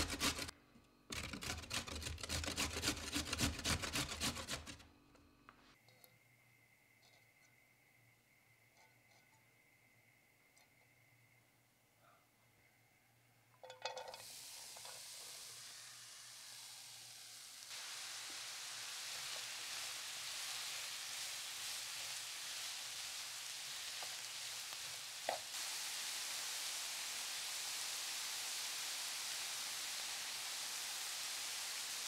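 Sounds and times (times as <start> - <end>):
vegetables clattering into pan: 13.6 - 15.6
vegetables sizzling in oil: 13.9 - 32.0.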